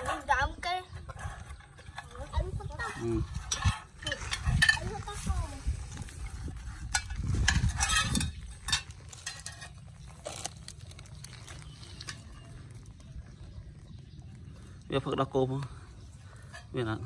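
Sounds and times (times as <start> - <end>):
metal trays clinking and scraping: 1.6 - 5.2, 6.8 - 10.0.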